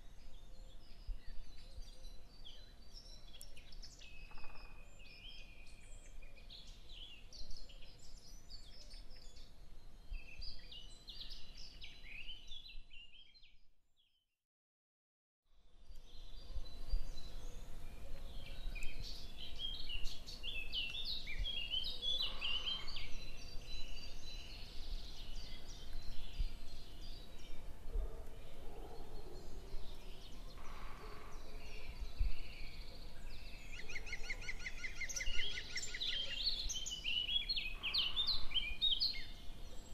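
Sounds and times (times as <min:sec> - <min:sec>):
small birds chirping: 0:00.0 - 0:13.6, 0:15.8 - 0:39.9
bird trill: 0:33.6 - 0:39.4.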